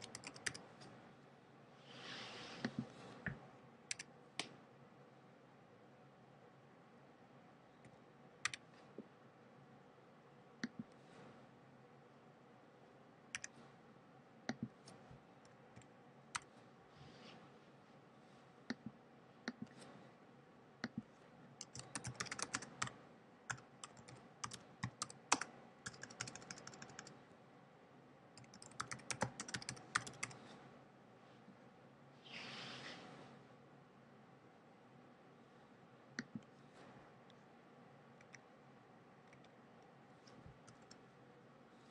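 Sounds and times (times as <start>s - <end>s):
computer keyboard typing: 0.0s - 0.8s, 21.6s - 27.1s, 28.4s - 30.4s, 40.6s - 41.0s.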